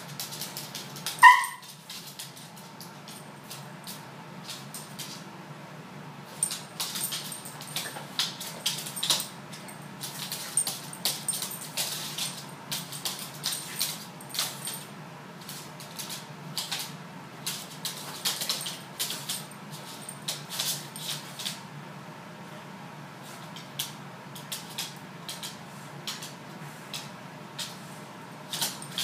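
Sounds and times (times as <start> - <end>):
light metallic jingle: 6.3 - 14.9, 28.5 - 29.0.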